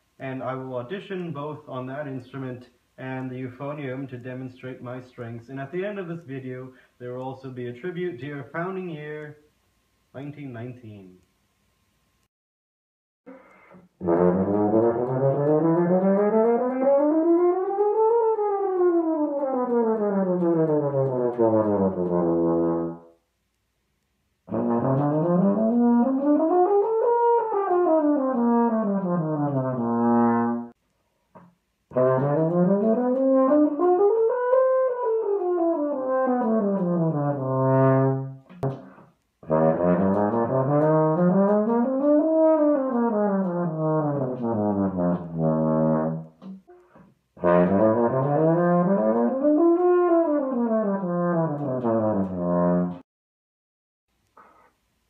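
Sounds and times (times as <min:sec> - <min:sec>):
euphonium playing scales: 0:14.0 - 0:23.1.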